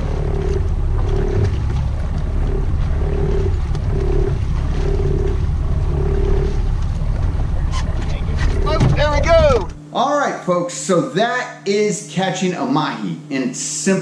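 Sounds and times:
water and wind noise: 0:00.0 - 0:09.8
boat engine rumbling: 0:00.0 - 0:09.9.

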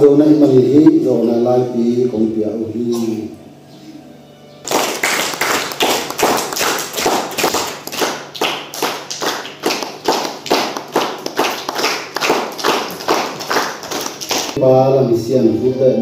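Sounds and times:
hands clapping: 0:04.7 - 0:14.6.

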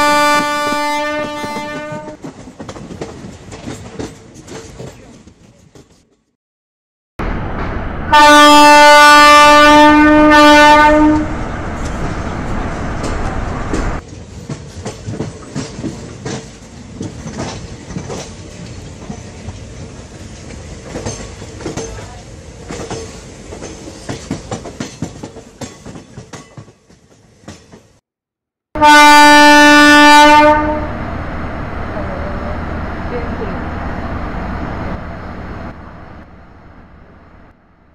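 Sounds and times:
train horn blowing: 0:00.0 - 0:02.2, 0:08.1 - 0:11.4, 0:28.8 - 0:31.0
train wheels clattering over rail joints: 0:00.7 - 0:06.3, 0:13.0 - 0:28.0.

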